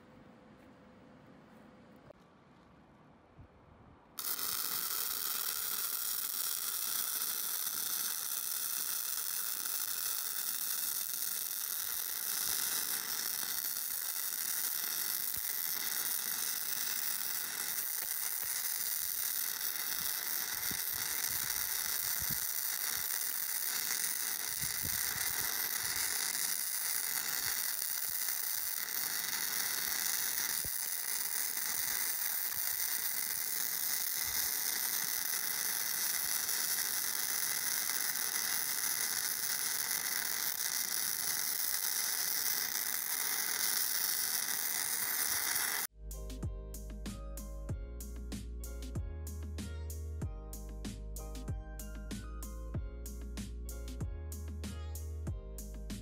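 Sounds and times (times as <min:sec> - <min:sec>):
welding arc crackling: 0:04.2 - 0:45.9.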